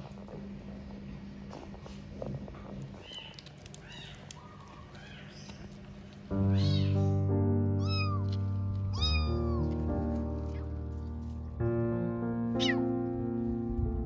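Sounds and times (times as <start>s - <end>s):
background music sustained notes: 6.3s - 14.0s
kitten meowing: 6.4s - 9.8s, 12.6s - 12.9s.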